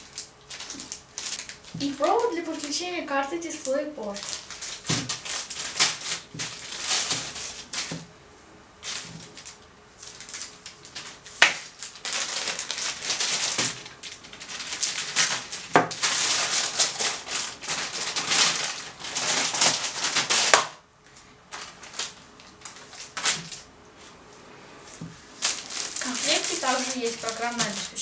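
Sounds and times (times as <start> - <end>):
plastic packaging crinkling: 0.0 - 8.1, 8.8 - 24.1, 24.9 - 28.0
faint handling sounds: 21.0 - 28.0.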